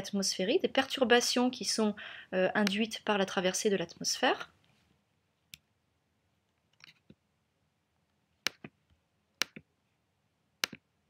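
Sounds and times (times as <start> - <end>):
computer mouse clicks: 10.6 - 10.8.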